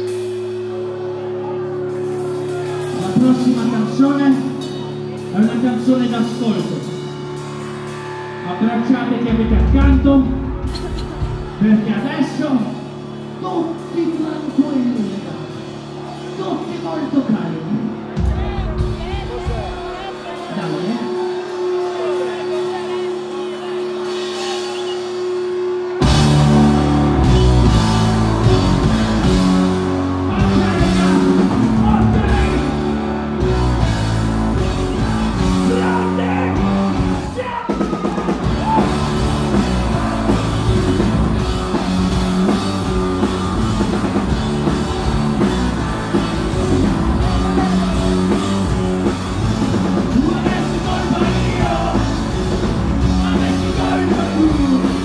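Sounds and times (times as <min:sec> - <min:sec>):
rock band playing: 0:00.0 - 0:55.0
person singing: 0:53.0 - 0:55.0.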